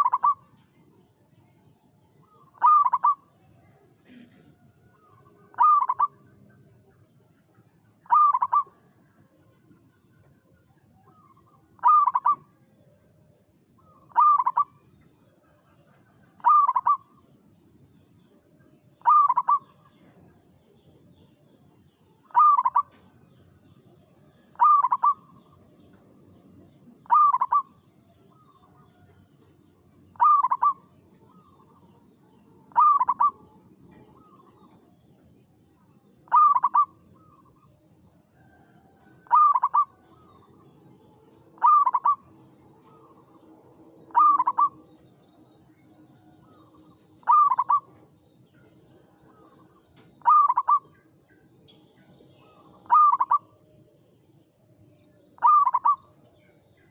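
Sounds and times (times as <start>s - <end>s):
dove cooing: 0.0s - 0.5s, 2.3s - 3.3s, 4.1s - 6.2s, 8.0s - 8.8s, 11.1s - 12.5s, 13.8s - 14.8s, 16.4s - 17.2s, 19.0s - 20.1s, 22.3s - 23.0s, 24.5s - 25.6s, 26.9s - 28.9s, 30.1s - 31.8s, 32.6s - 34.8s, 36.2s - 37.8s, 38.4s - 40.7s, 41.4s - 43.4s, 44.1s - 44.9s, 47.2s - 48.0s, 49.4s - 51.0s, 52.5s - 53.6s, 55.4s - 56.1s.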